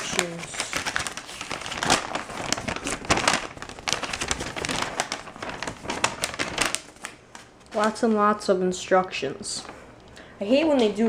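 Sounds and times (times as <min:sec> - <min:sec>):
paper crinkling and rustling: 0:00.0 - 0:08.1.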